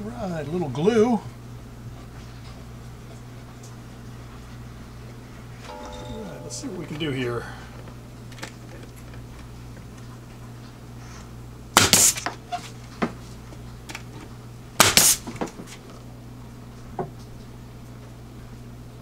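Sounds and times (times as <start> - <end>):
nail gun shots into wood: 11.8 - 12.3, 14.8 - 15.5.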